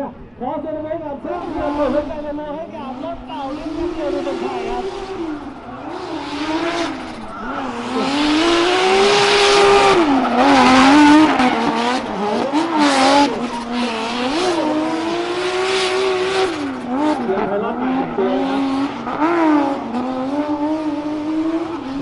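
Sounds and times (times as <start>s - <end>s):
turbocharged car engine revving: 0.7s - 22.0s
tyres screeching: 1.2s - 17.3s.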